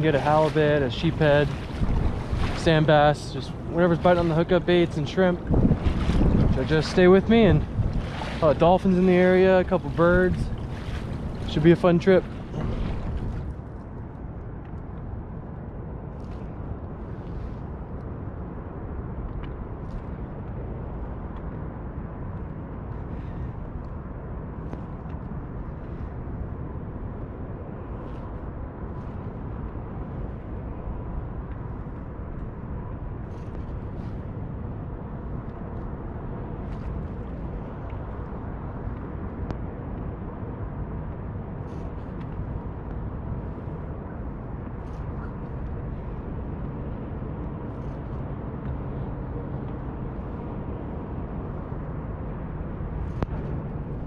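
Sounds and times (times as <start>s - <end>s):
small splashes and drips: 0.0s - 13.8s
water moving past kayak hull: 0.0s - 13.8s
wind rumble on microphone: 0.0s - 54.0s.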